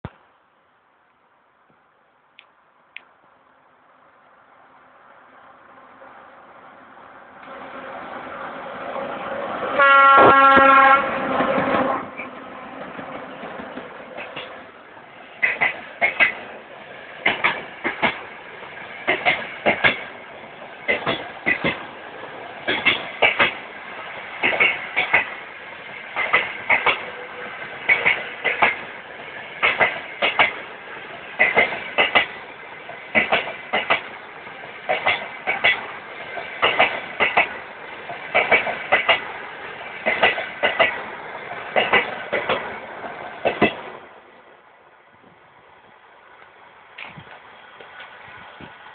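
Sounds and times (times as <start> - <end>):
train wheels clattering over rail joints: 15.4 - 16.6, 17.2 - 20.2, 20.8 - 21.9, 22.6 - 23.7, 24.3 - 27.1, 27.7 - 43.9.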